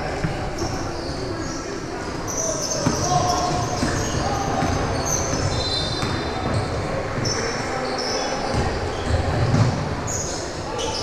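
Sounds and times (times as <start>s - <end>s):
sneaker squeaks on court: 0.2s - 11.0s
basketball bouncing: 4.6s - 6.6s.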